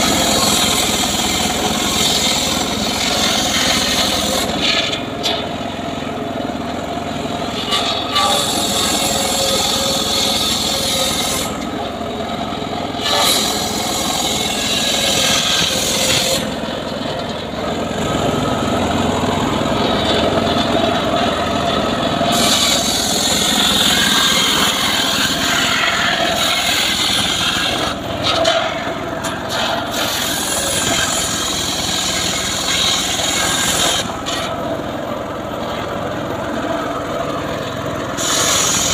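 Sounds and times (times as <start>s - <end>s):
sawmill engine running: 0.0s - 38.9s
high sawing hiss: 22.3s - 28.0s, 29.5s - 34.1s, 38.2s - 38.9s.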